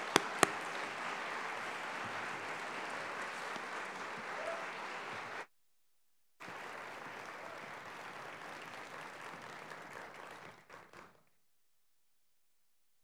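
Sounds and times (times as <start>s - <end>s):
audience applauding: 0.0s - 5.5s, 6.4s - 11.3s.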